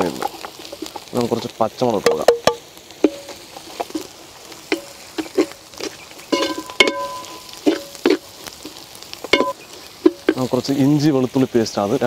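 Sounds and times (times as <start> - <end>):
onions sizzling in oil: 0.0 - 12.0
metal ladle scraping a pot: 4.7 - 10.4.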